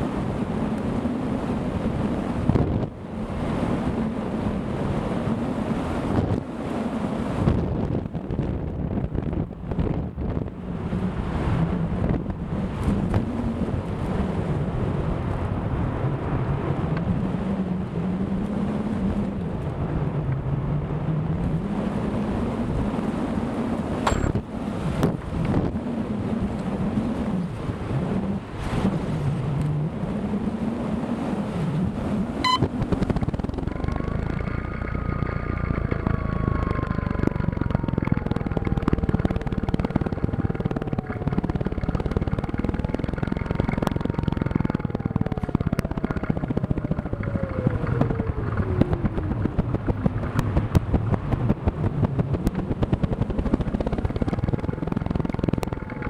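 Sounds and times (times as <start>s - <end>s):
wind buffeting microphone: 0.0s - 56.0s
fast vibration crackle: 33.0s - 56.0s.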